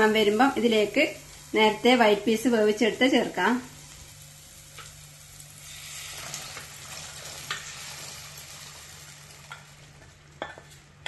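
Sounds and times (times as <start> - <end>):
peas sizzling in hot pot: 0.0 - 11.0.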